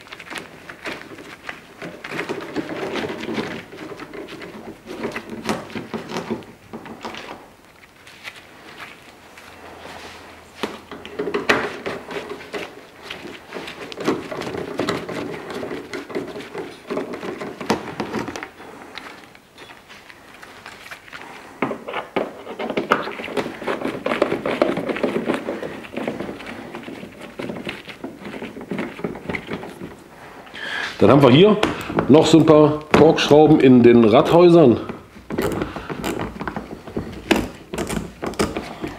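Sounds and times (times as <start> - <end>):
screws and fittings clicking and rattling: 35.3 - 38.9.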